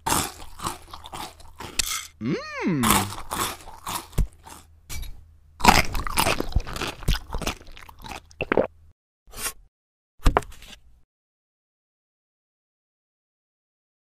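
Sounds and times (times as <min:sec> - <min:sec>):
crisp crunching and chewing: 0:00.0 - 0:01.8, 0:02.8 - 0:04.7, 0:05.6 - 0:08.7.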